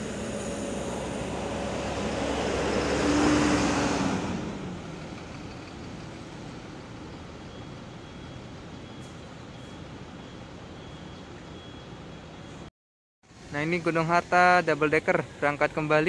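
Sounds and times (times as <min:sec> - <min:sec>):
bus diesel engine pulling away: 0:00.0 - 0:12.7.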